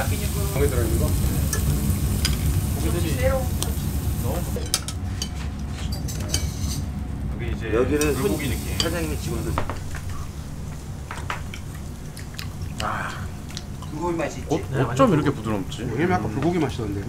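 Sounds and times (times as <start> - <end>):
steady low rumble: 0.0 - 4.6
meat sizzling on a grill: 0.0 - 4.7, 7.9 - 10.0.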